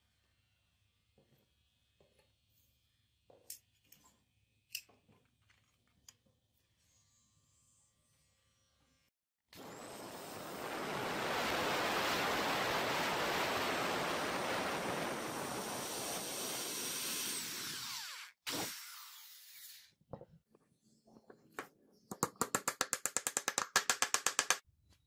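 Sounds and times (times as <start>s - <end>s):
electric drill boring wood: 15.8s - 19.9s.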